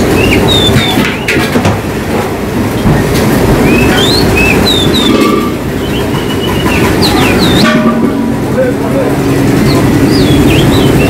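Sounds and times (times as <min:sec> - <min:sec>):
songbirds whistling: 0:00.0 - 0:01.4, 0:03.5 - 0:07.7, 0:09.6 - 0:11.0
low rushing rumble: 0:02.2 - 0:11.0.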